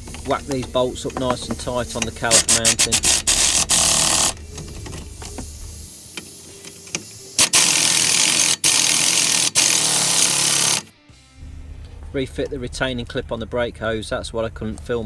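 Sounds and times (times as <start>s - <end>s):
impact wrench hammering: 0.0s - 10.9s.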